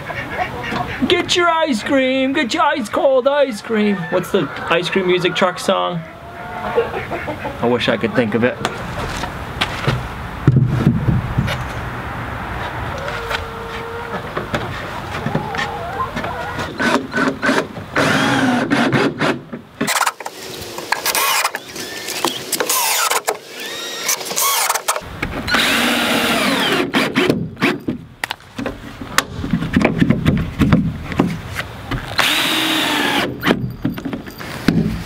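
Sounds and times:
cordless drill driving screws: 0:16.8 - 0:19.3, 0:19.9 - 0:27.3, 0:32.2 - 0:33.3
handling clicks and knocks: 0:33.4 - 0:35.0.

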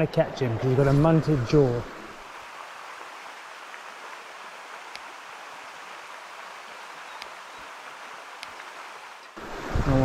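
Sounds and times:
river water running: 0:00.0 - 0:10.0
faint high ticks: 0:04.9 - 0:05.1, 0:07.1 - 0:07.4, 0:08.4 - 0:09.4.

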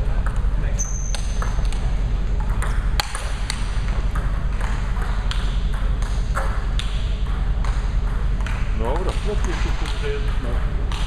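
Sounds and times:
steady low hum: 0:00.0 - 0:11.0
table tennis balls clicking: 0:00.2 - 0:11.0.

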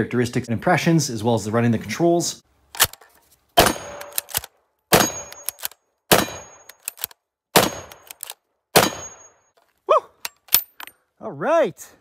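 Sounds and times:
rifle bolt clicks: 0:02.7 - 0:03.1, 0:03.9 - 0:04.5, 0:05.2 - 0:05.8, 0:06.6 - 0:07.2, 0:07.8 - 0:08.4
rifle shots: 0:03.6 - 0:06.7, 0:07.6 - 0:08.1, 0:08.8 - 0:09.3
faint ring of steel target: 0:04.9 - 0:05.5, 0:08.8 - 0:09.5.

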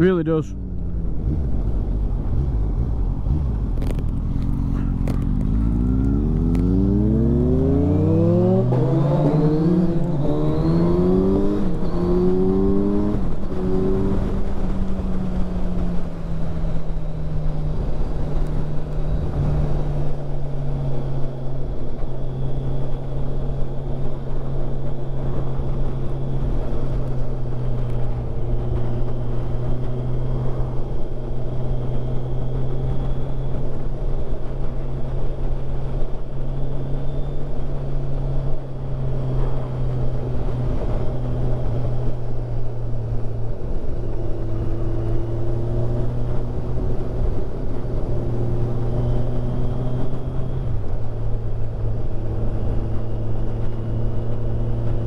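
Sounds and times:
motorcycle engine accelerating: 0:00.0 - 0:55.0
wind rushing over microphone: 0:00.0 - 0:55.0.

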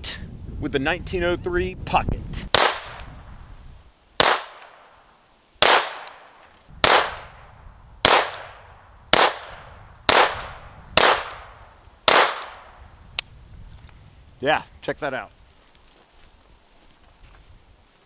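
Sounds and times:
pistol shots with echo: 0:02.6 - 0:03.1, 0:04.2 - 0:04.9, 0:05.6 - 0:07.4, 0:08.0 - 0:12.8.

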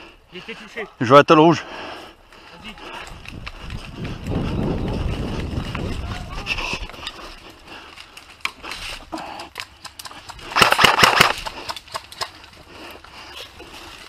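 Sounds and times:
airsoft gun full-auto burst: 0:10.6 - 0:11.4.

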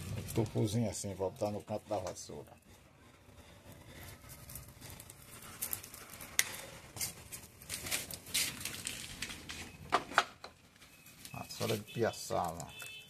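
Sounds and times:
rustling of stiff fibre: 0:03.5 - 0:09.8.

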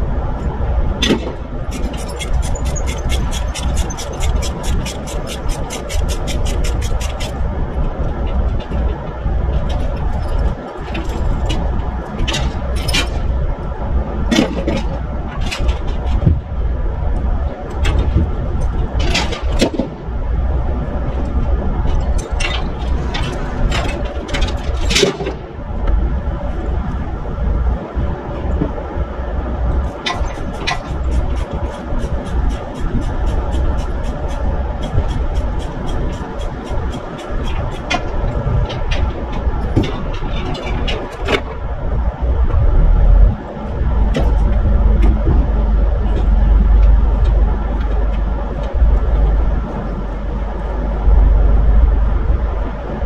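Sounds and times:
diesel machinery rumbling: 0:00.0 - 0:53.0
metallic clanks and scrapes: 0:21.2 - 0:25.4, 0:29.8 - 0:41.6.

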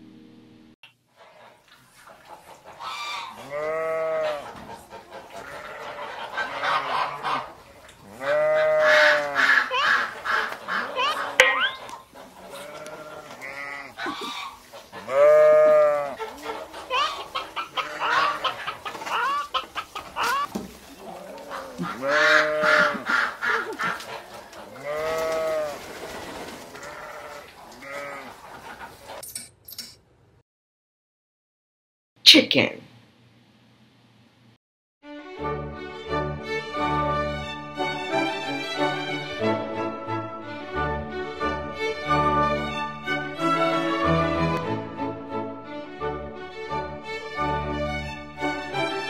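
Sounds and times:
animal bleating: 0:02.9 - 0:04.6, 0:05.4 - 0:19.5, 0:20.2 - 0:24.0, 0:24.7 - 0:25.8, 0:26.8 - 0:28.4
person imitating a chicken: 0:08.2 - 0:10.2, 0:10.8 - 0:13.0, 0:13.6 - 0:14.6, 0:20.2 - 0:23.8.

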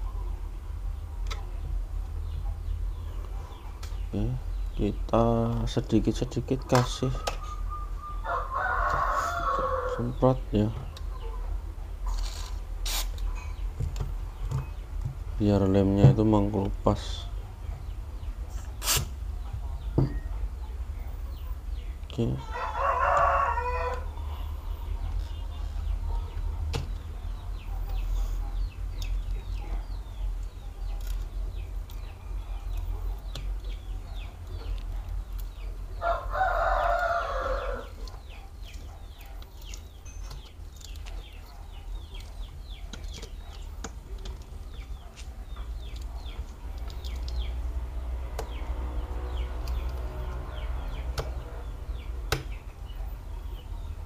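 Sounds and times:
low steady hum: 0:00.0 - 0:54.0
rooster crowing: 0:07.4 - 0:10.2, 0:22.4 - 0:24.2, 0:36.0 - 0:38.0.

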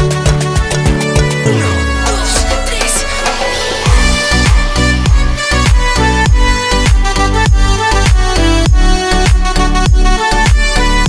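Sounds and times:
steady synth chord: 0:00.2 - 0:11.0
deep bass-drum beat: 0:03.9 - 0:11.0.

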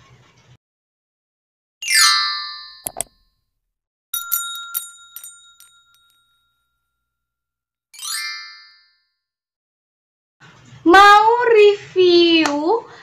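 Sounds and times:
bell-like ring: 0:01.8 - 0:03.1, 0:04.2 - 0:07.0.

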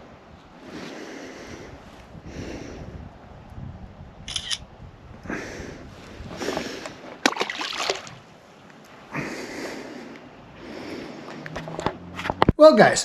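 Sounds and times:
short bursts of noise: 0:04.3 - 0:04.7
fish splashing into pond: 0:07.2 - 0:08.3.

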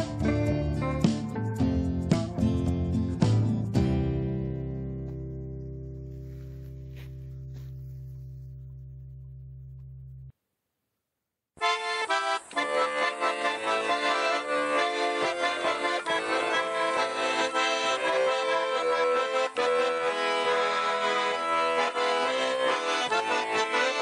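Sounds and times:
instrumental music: 0:00.0 - 0:10.4, 0:11.6 - 0:24.0.

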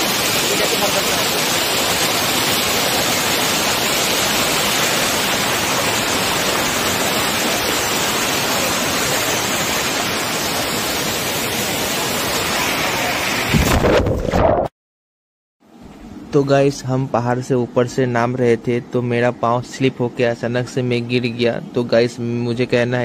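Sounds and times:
waterfall rushing over rocks: 0:00.0 - 0:13.6.

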